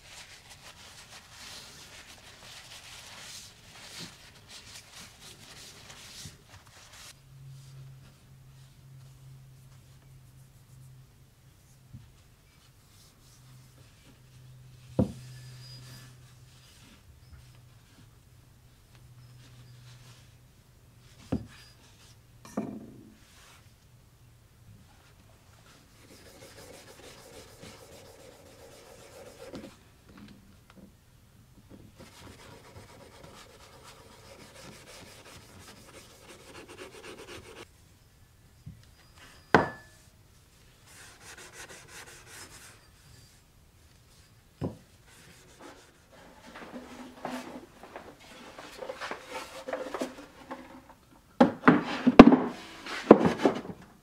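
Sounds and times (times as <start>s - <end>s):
steel wool rubbing on metal: 25.9s - 29.7s, 32.0s - 37.7s.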